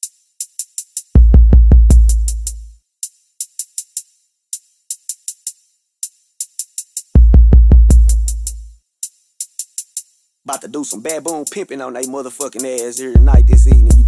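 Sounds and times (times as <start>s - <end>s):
hi-hat ticks: 0.0s - 14.0s
deep bass note: 13.2s - 14.0s.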